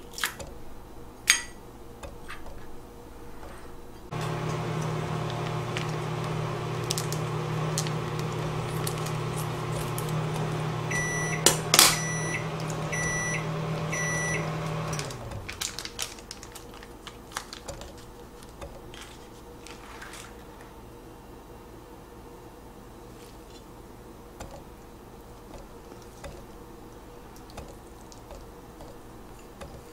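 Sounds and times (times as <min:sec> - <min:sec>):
microwave beeping: 0:04.1 - 0:15.6
microwave oven humming: 0:04.1 - 0:16.8.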